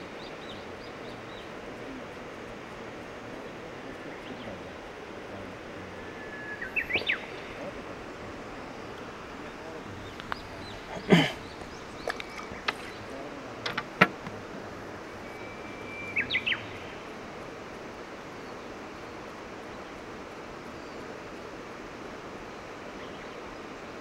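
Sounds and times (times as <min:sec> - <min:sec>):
steady background hiss: 0:00.0 - 0:24.0
light clicks: 0:12.0 - 0:13.0.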